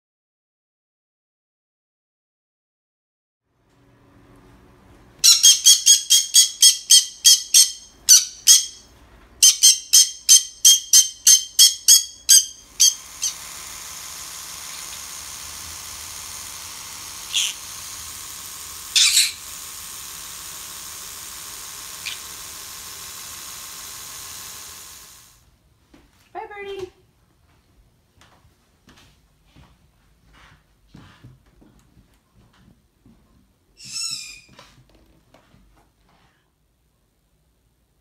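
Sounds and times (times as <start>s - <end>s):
parrot squawking: 5.2s - 8.8s, 9.4s - 13.4s, 17.2s - 17.7s, 18.9s - 19.5s, 22.0s - 22.3s, 33.8s - 34.5s
electric toothbrush buzzing: 5.2s - 25.4s.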